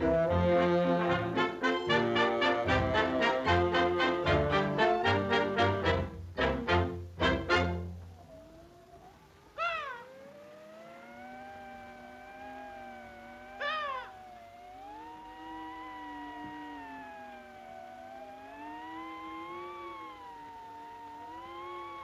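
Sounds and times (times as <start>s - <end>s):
short rising and falling cry: 0.0s - 22.0s
wavering moaning tone: 8.2s - 22.0s.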